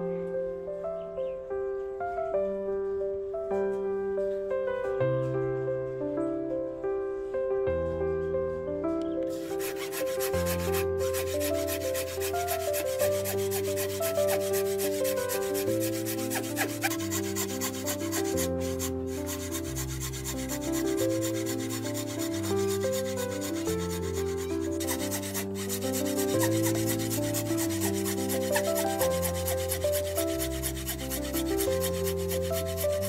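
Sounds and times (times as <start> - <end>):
background music: 0.0 - 33.0
saw cutting wood: 9.3 - 33.0.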